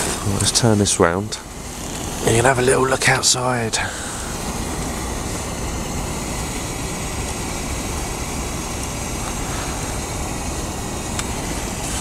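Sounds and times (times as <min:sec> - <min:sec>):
hiss: 0:00.0 - 0:12.0
low fluctuating rumble: 0:00.0 - 0:12.0.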